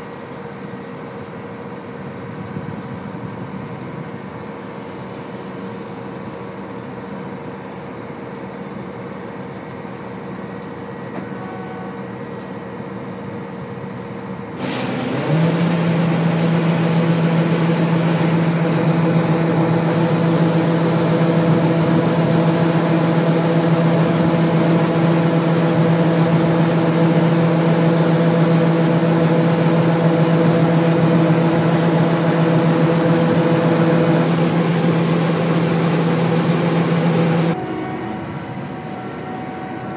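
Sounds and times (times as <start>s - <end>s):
combine harvester running: 0.0s - 39.9s
grain pouring into trailer: 4.2s - 10.9s, 14.6s - 37.5s.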